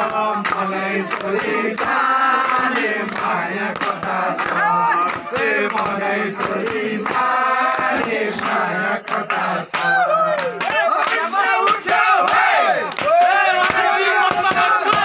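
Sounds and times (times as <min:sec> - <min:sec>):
men singing a folk song: 0:00.0 - 0:15.0
men shouting: 0:04.2 - 0:05.6, 0:09.8 - 0:15.0
whoops: 0:09.8 - 0:10.6.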